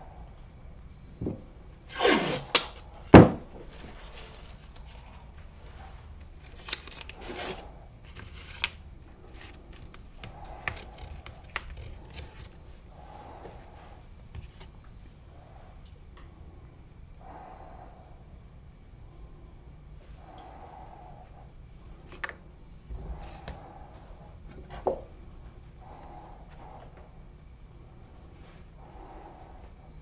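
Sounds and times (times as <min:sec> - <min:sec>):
rustling and scraping: 0:01.2 - 0:15.8.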